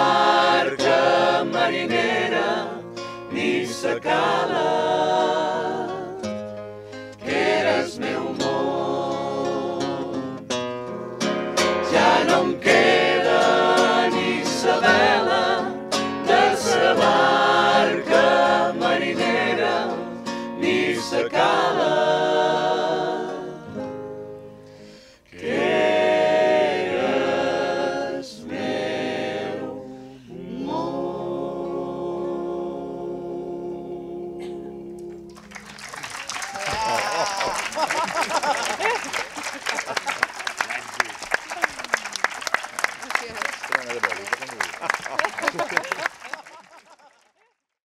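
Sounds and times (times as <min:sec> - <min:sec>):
group singing a folk song: 0:00.0 - 0:35.7, 0:37.8 - 0:39.0
acoustic guitar: 0:00.0 - 0:40.0.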